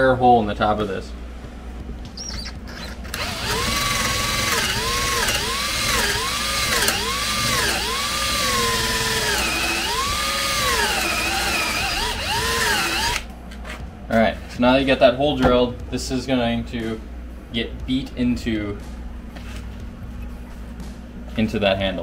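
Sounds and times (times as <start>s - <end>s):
cordless drill boring into wood: 2.7s - 13.2s.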